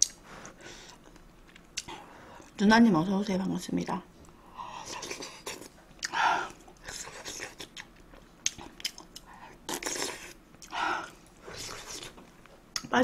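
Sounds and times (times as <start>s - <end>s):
close chewing and biting: 4.8s - 12.9s.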